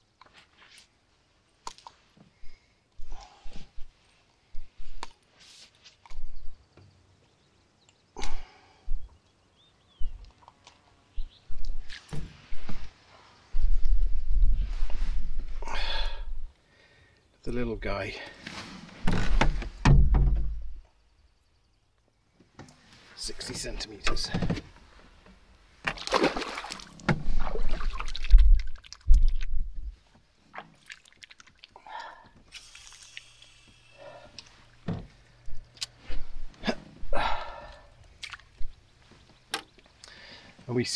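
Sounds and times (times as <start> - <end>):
water splashing against boat: 25.8 - 28.7
fish thrashing in water: 25.9 - 29.4, 30.5 - 31.8.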